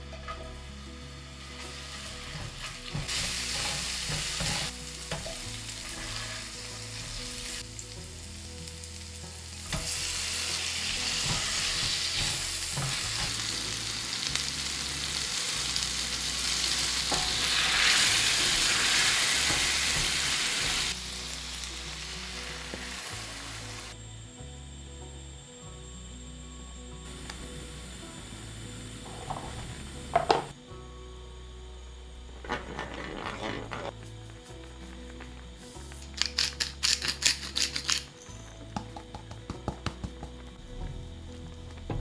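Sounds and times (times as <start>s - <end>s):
oil sizzling in frying pan: 0.0s - 24.0s, 27.1s - 30.6s.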